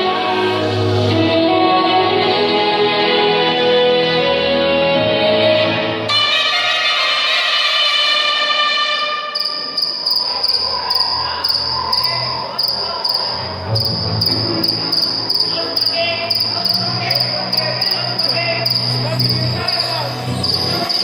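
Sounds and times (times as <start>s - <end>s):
music: 0.0s - 21.0s
high rapidly pulsing chirp: 9.4s - 21.0s.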